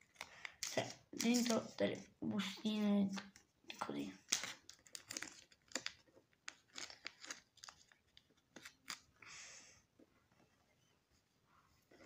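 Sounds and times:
plastic sleeve crinkling: 0.0s - 2.0s, 3.9s - 9.1s.

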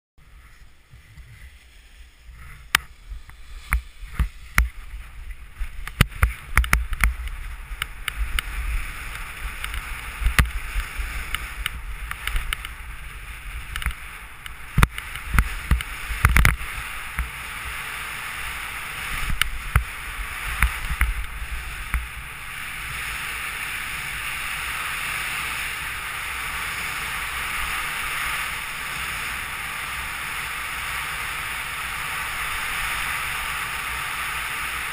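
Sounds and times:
wind rushing over microphone: 0.2s - 34.9s
skis clattering over hard snow: 0.4s - 34.9s.

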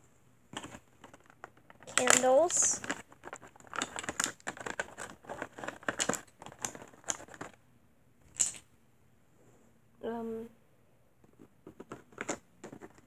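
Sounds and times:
plastic packaging crinkling: 0.6s - 7.6s.

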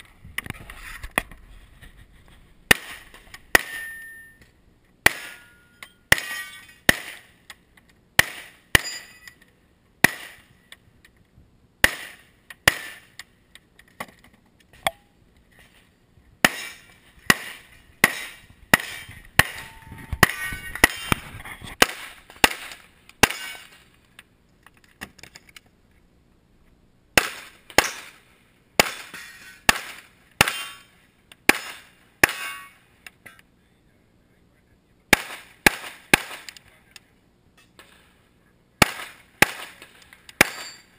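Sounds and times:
pistol shots: 16.4s - 21.2s, 27.2s - 28.2s, 35.1s - 36.6s, 38.8s - 39.8s.

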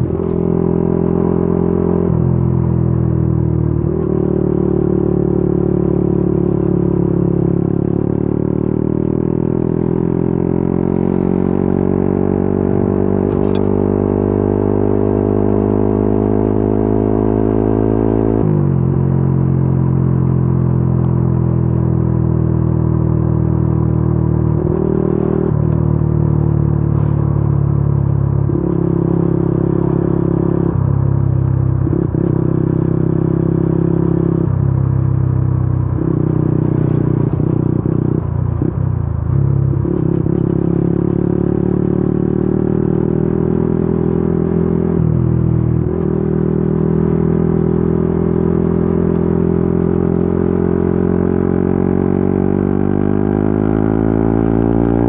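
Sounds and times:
motorcycle engine running: 14.7s - 55.0s.

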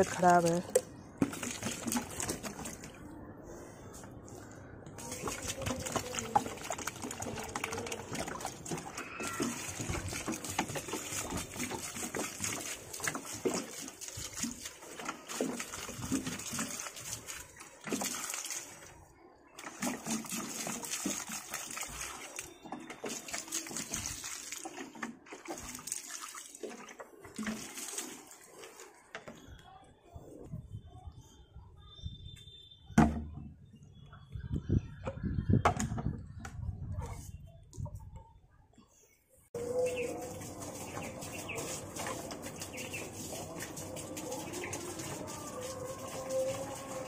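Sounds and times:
water pouring into soil: 0.0s - 3.1s, 5.0s - 29.1s, 39.6s - 47.0s.

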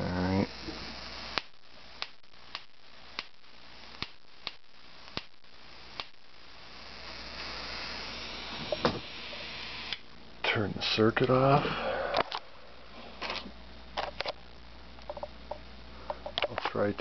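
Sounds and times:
sharp spark snaps: 0.0s - 10.1s
high-voltage hissing: 0.0s - 13.6s.

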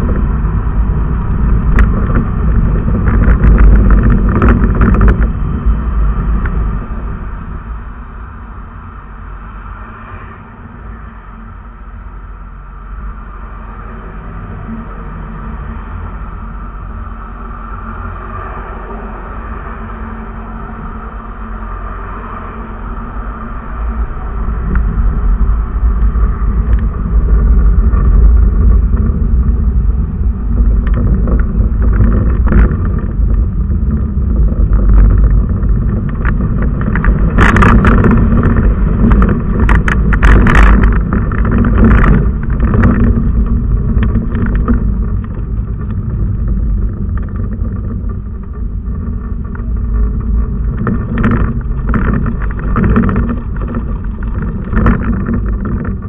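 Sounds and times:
vehicle road rumble: 0.0s - 56.0s
wind on microphone: 0.0s - 56.0s
sharp crackles: 1.2s - 5.6s, 24.6s - 56.0s.

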